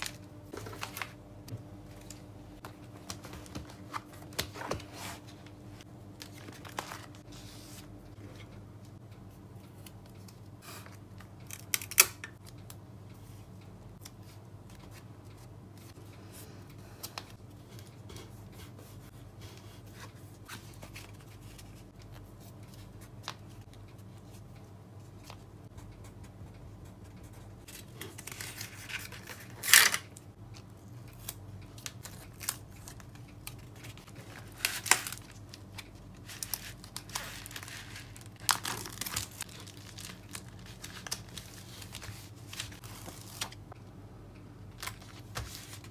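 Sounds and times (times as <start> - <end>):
plastic mailer crinkling: 32.0 - 43.7.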